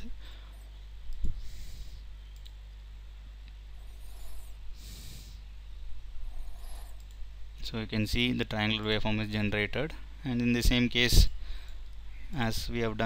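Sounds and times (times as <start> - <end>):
low electrical hum: 0.0 - 13.0
computer mouse click: 2.4 - 2.6.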